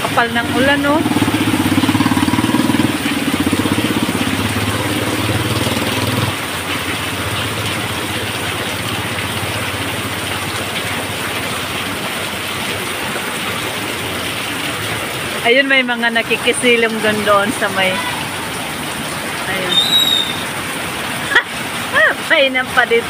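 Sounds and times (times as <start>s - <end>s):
vehicle engine idling: 0.0s - 15.5s
heavy rain on street and roof: 0.0s - 23.0s.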